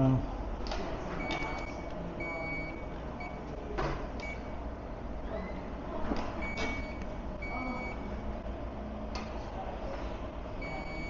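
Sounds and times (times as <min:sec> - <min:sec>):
reverse warning beeps: 0:01.2 - 0:03.4, 0:06.4 - 0:08.1, 0:10.6 - 0:11.0.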